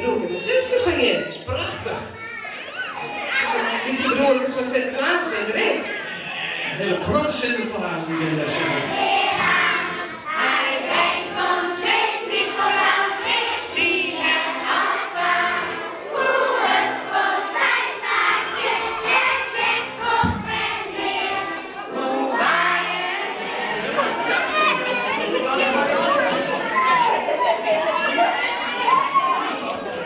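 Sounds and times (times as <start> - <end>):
children singing together: 8.0 - 30.0.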